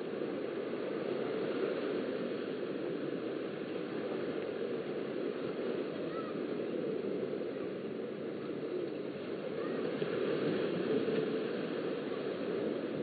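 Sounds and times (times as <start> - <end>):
small waves washing onto sand: 0.0 - 13.0
faint distant voices: 3.6 - 13.0.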